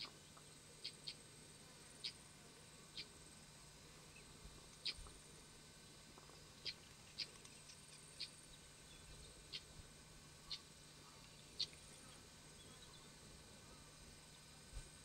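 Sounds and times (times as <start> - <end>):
faint steady hum: 0.0 - 15.0
small animal chirping: 0.8 - 1.2, 2.0 - 2.2, 2.9 - 3.2, 4.8 - 5.1, 6.6 - 8.4, 9.5 - 9.7.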